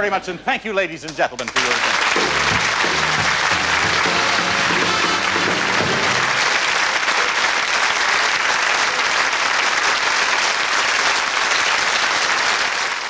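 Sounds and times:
audience applauding: 1.4 - 13.0
music: 1.9 - 6.7.

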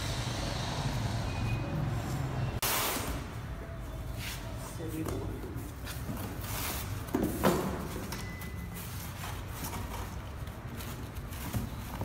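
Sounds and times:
cardboard and foam rustling: 5.6 - 12.0.

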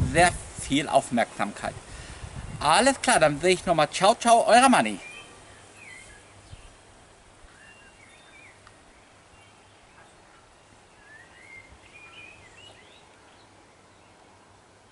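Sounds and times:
faint birds chirping: 4.5 - 14.9.

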